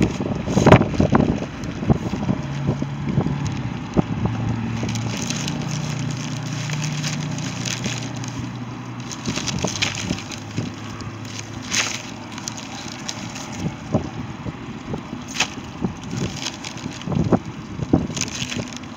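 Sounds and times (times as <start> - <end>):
plastic bags crinkling: 0.0 - 18.9.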